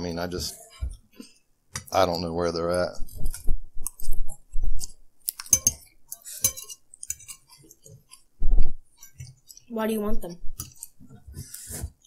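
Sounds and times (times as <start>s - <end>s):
forks clinking on plates: 5.4s - 7.9s
soft low thumps: 8.4s - 8.8s.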